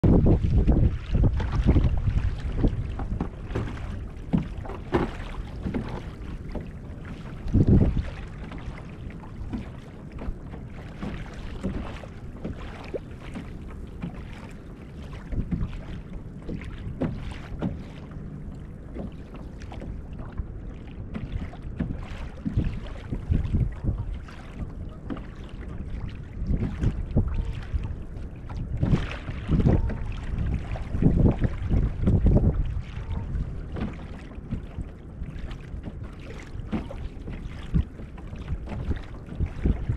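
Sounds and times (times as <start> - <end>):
thump on hull: 0.0 - 18.1, 18.9 - 20.4, 21.1 - 39.9
waves lapping against kayak hull: 0.0 - 39.9
wind buffeting microphone: 0.0 - 39.9.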